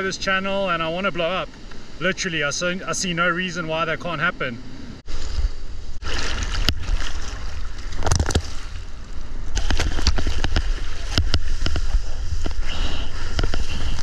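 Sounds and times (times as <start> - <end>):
low rumble of water and wind: 0.0 - 14.0
water rushing and splashing: 6.0 - 14.0.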